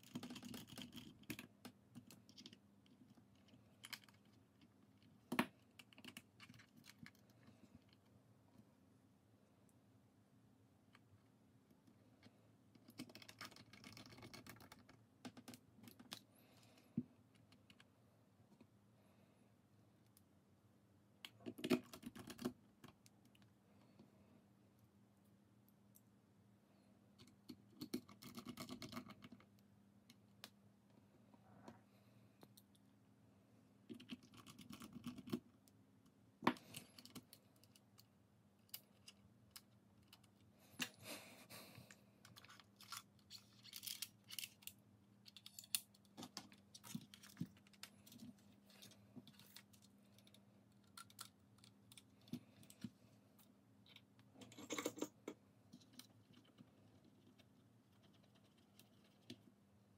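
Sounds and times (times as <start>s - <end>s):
faint steady hum: 0.0s - 59.9s.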